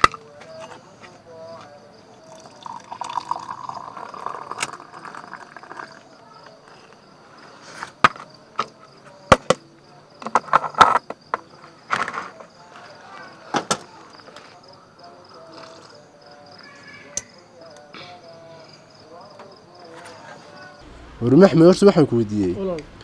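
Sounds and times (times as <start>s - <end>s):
cups clinking set down: 0.0s - 0.8s, 2.3s - 6.0s
crickets chirping: 0.0s - 23.0s
liquid pouring into cup: 2.2s - 6.1s.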